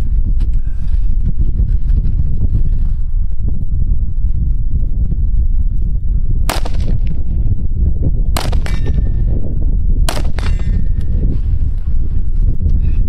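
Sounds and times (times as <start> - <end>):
rifle shots: 6.5 - 7.2, 8.4 - 9.0, 10.1 - 10.6.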